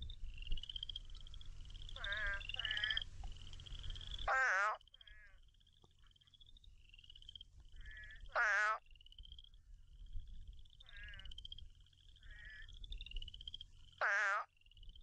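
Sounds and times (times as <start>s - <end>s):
toads calling with wavering moans: 0.0s - 9.6s
frogs trilling: 0.0s - 15.0s.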